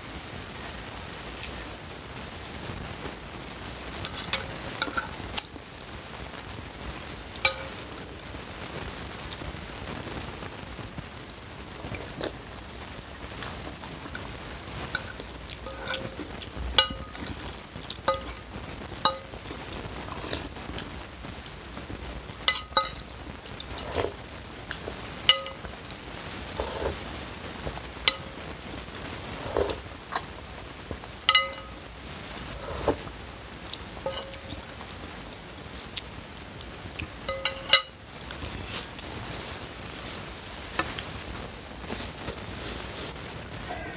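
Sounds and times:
cutlery clinking on ceramic bowl: 7.4s - 7.8s, 14.9s - 18.4s, 19.1s - 19.4s, 22.4s - 23.1s, 25.3s - 25.7s, 28.1s - 28.4s, 31.3s - 31.8s, 34.1s - 34.7s, 37.3s - 38.0s
chewing: 19.1s - 20.9s, 22.4s - 27.0s, 28.9s - 30.3s
slurping soup: 26.5s - 27.0s, 29.4s - 29.8s, 32.6s - 33.1s.

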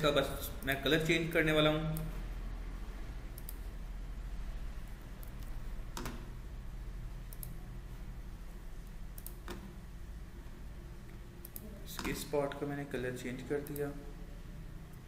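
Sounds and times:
computer mouse clicking: 3.3s - 3.7s, 4.8s - 6.3s, 7.3s - 7.6s, 9.1s - 9.7s, 11.4s - 12.2s.

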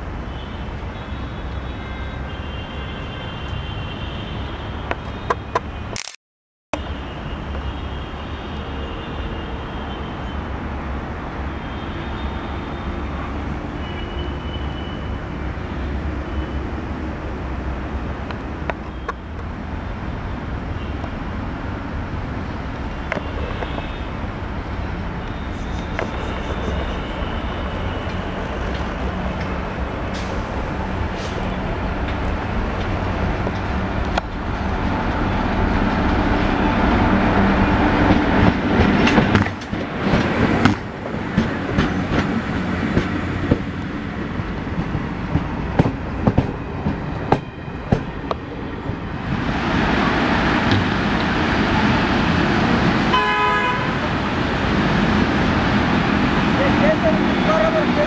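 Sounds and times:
electric train approaching: 24.0s - 58.0s.

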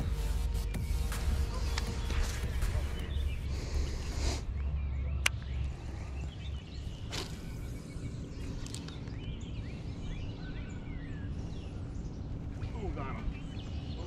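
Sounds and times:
small birds chirping: 0.0s - 14.0s
steady low rumble: 0.0s - 14.0s
sharp click: 5.2s - 5.5s.

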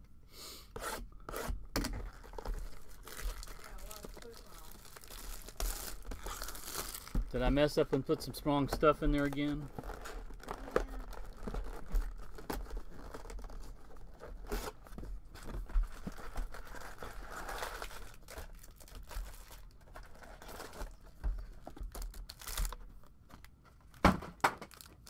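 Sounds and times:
wrappers crinkling and tearing: 1.9s - 8.4s, 9.1s - 24.0s, 24.6s - 25.0s.

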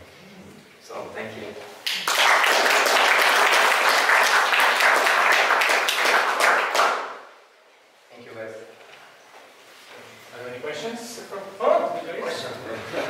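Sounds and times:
small audience applauding: 1.8s - 7.3s.

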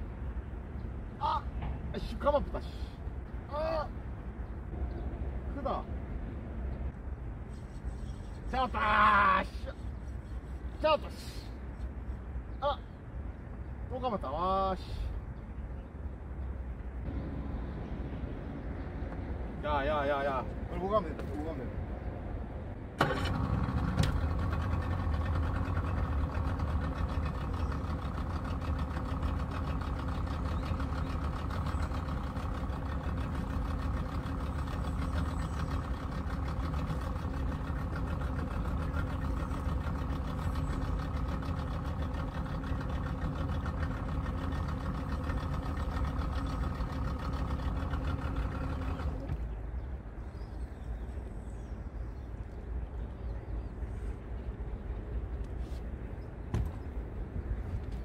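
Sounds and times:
boat motor humming: 15.5s - 21.5s, 22.9s - 58.0s.

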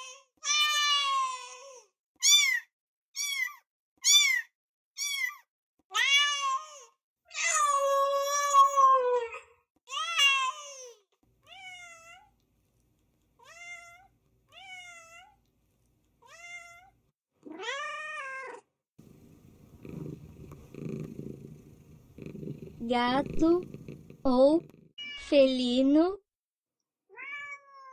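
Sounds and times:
cat meowing: 2.2s - 6.8s, 16.2s - 18.7s, 24.6s - 25.3s, 27.1s - 27.9s
cat purring: 19.0s - 26.0s.

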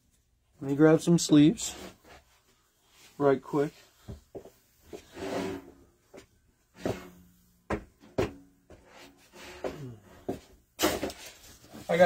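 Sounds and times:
objects knocking and clunking: 4.0s - 11.8s.

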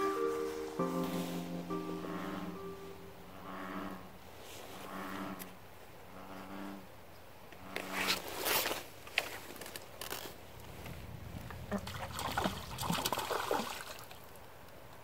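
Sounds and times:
fish thrashing and splashing water: 11.7s - 14.4s.

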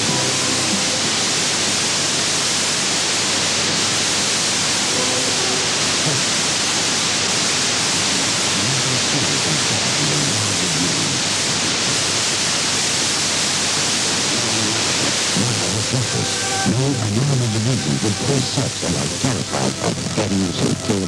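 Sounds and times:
radio static hiss: 0.0s - 21.0s
faint radio programme: 4.8s - 12.6s, 13.8s - 21.0s.

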